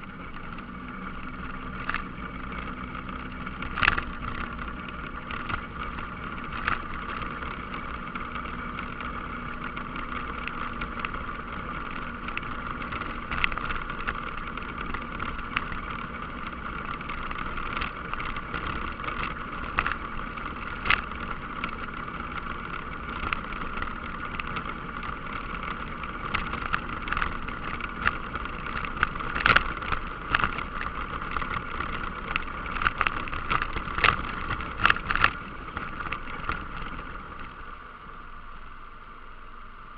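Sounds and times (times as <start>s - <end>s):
atv engine running: 0.0s - 39.9s
stones clicking and knocking: 20.6s - 37.2s.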